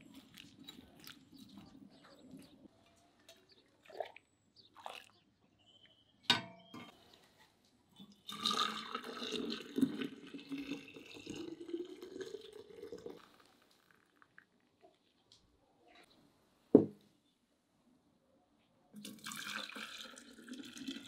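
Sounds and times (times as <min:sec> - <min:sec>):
liquid pouring into container: 0:08.0 - 0:14.6, 0:19.0 - 0:21.0.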